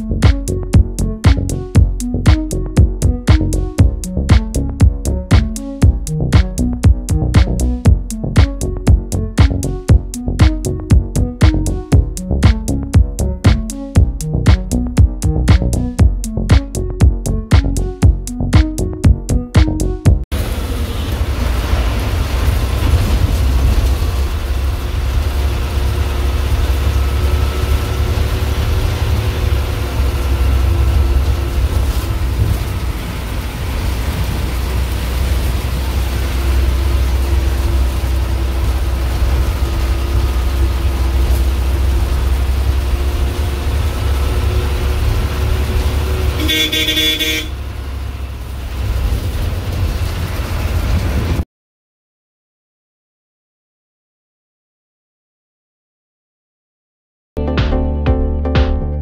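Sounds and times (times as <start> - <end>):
bus engine rumbling: 0.0 - 51.4
bus horn: 45.9 - 47.7.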